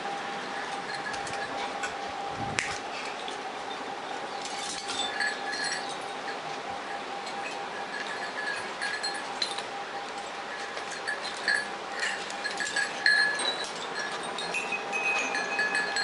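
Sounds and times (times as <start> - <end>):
faint steady hum: 0.0 - 16.0
small brass bells clinking: 0.5 - 1.9, 4.4 - 16.0.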